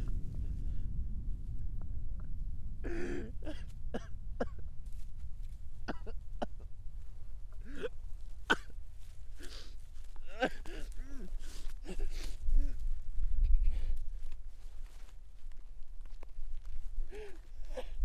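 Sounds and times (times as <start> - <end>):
low steady rumble: 0.0 - 18.0
man coughing: 2.9 - 4.6, 5.9 - 6.6, 7.6 - 7.9, 8.5 - 8.7, 10.2 - 12.3.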